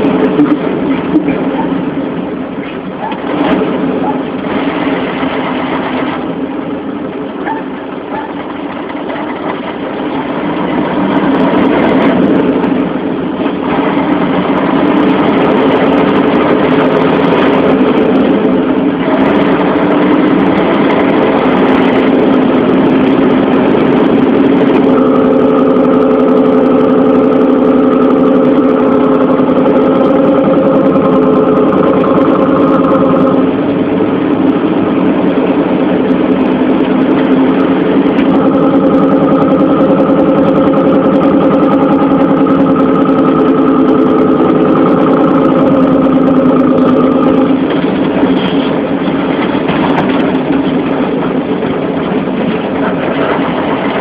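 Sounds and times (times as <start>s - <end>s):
heavy vehicle engine running: 0.0s - 54.0s
higher tone: 20.6s - 34.2s, 37.0s - 48.2s.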